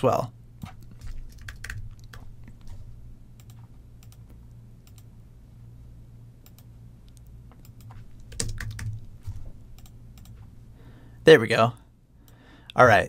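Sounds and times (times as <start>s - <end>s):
computer keyboard typing: 0.6s - 2.8s, 7.6s - 10.4s.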